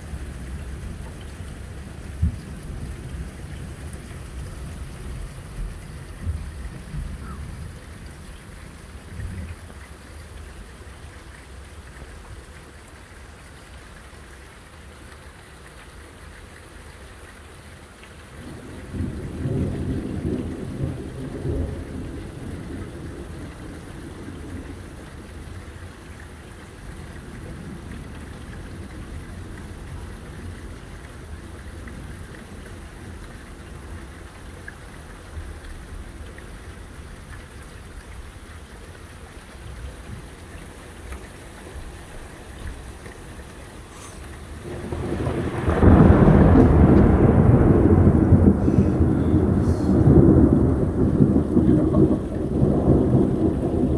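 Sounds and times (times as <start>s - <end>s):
steady rain: 0.0s - 53.9s
crackling thunder clap: 18.4s - 24.8s, 44.6s - 53.9s.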